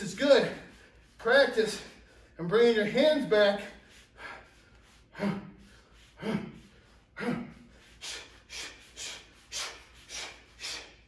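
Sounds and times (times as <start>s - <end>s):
man grunting: 6.2s - 6.6s, 7.2s - 7.6s.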